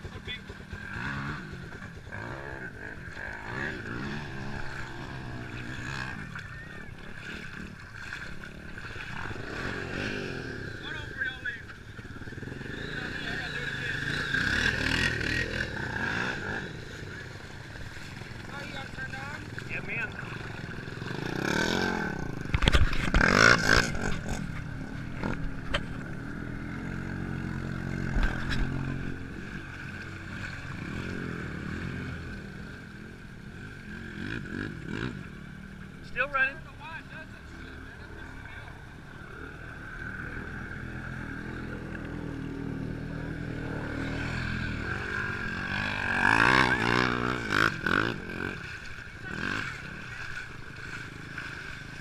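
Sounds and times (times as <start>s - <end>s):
atv engine running: 0.0s - 52.0s
water splashing and sloshing: 3.0s - 10.8s, 14.0s - 26.9s, 27.5s - 34.0s, 43.5s - 52.0s.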